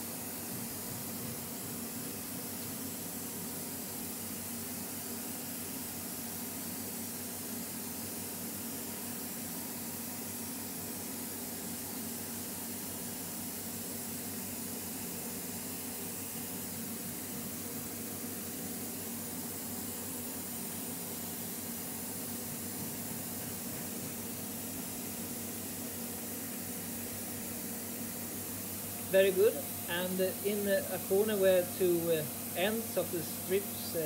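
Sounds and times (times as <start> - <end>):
low steady hum: 27.0 - 34.0
even hiss: 28.7 - 34.0.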